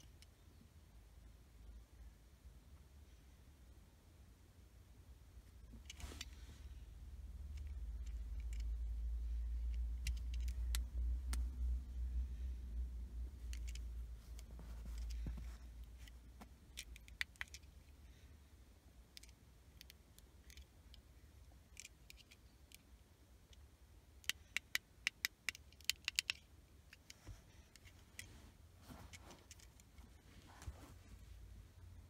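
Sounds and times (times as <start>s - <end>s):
faint low hum: 0.0s - 32.0s
small plastic clicks: 7.5s - 11.6s, 13.4s - 17.9s, 19.1s - 23.6s, 24.2s - 28.3s.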